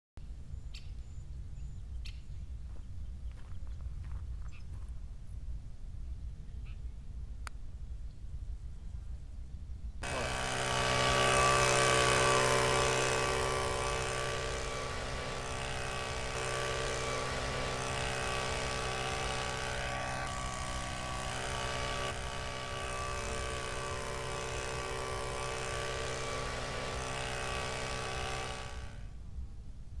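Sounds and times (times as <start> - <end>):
leaf blower running: 10.0 - 29.2.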